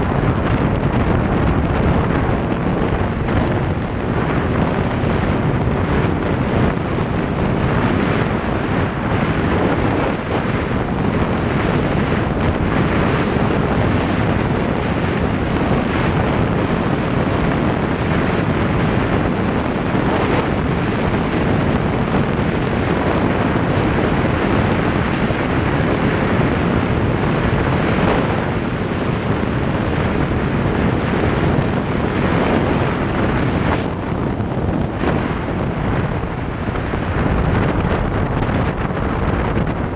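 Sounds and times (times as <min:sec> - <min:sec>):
snowmobile engine drone: 0:00.0 - 0:39.9
wind rush on microphone: 0:00.0 - 0:39.9.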